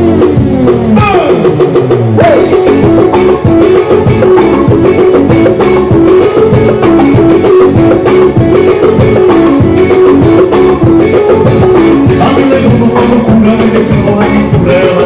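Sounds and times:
drum kit dance beat: 0.0s - 15.0s
electric guitar figure: 0.0s - 15.0s.

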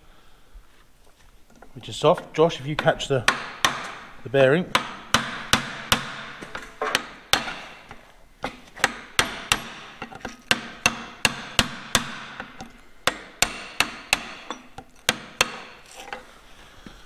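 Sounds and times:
hammer striking brass punch: 4.8s - 8.0s, 8.8s - 15.8s.

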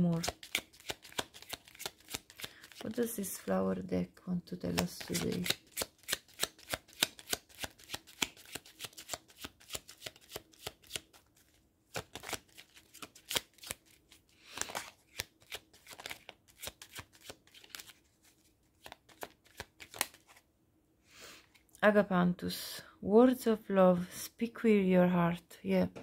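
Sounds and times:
cards being shuffled: 0.0s - 3.0s, 4.6s - 20.4s.

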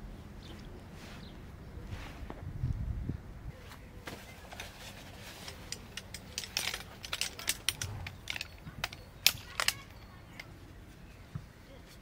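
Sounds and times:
tent poles and gear clinking: 3.6s - 12.0s.

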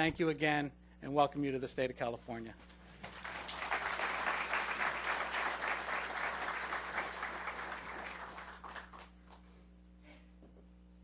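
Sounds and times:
audience applauding: 3.0s - 9.4s.

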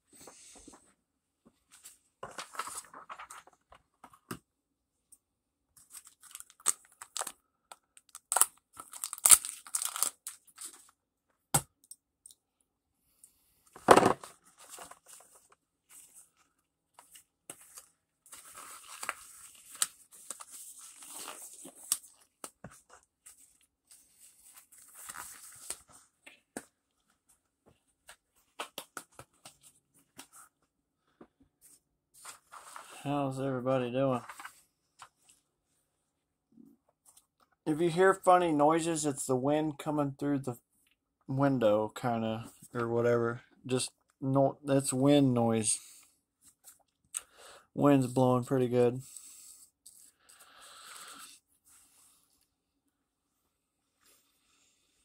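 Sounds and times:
packaging crinkling and tearing: 5.9s - 7.4s, 8.0s - 10.8s, 17.6s - 22.4s.

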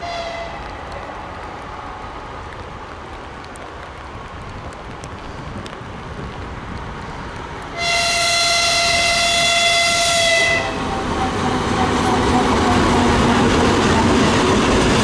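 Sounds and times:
locomotive horn blast: 0.0s - 0.6s, 7.8s - 13.4s
diesel locomotive engines running: 4.8s - 15.0s.

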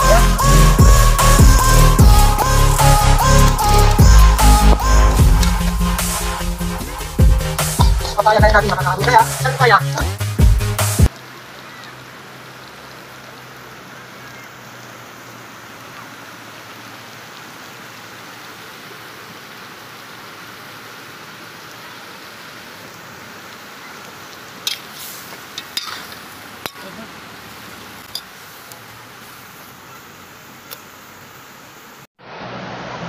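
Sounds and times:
meat sizzling in a wok: 24.6s - 26.8s
metal spoon scraping a wok: 25.6s - 26.2s.

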